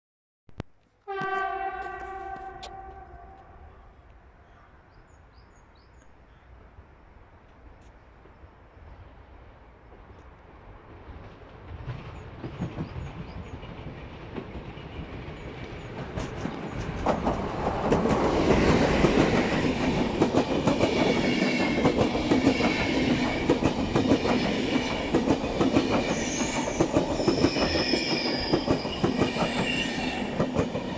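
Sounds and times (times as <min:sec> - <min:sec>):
passenger train passing: 0:01.0 - 0:04.6, 0:06.5 - 0:30.9
high wheel squeal: 0:26.1 - 0:30.3.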